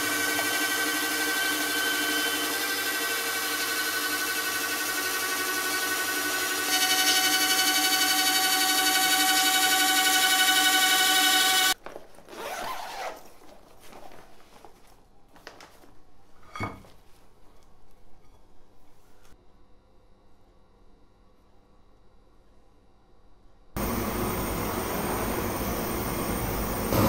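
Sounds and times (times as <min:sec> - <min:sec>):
machine tool cutting steel: 0:00.0 - 0:11.8
soft rustling: 0:11.8 - 0:19.4.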